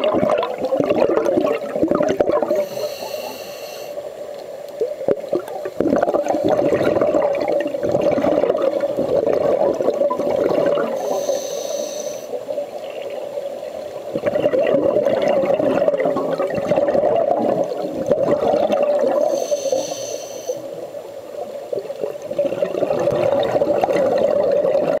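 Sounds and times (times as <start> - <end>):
gurgling exhaled bubbles: 0.0 - 2.8, 4.9 - 11.2, 14.0 - 19.8, 21.7 - 25.0
hissing regulator inhale: 2.5 - 4.1, 11.0 - 12.4, 19.2 - 20.8.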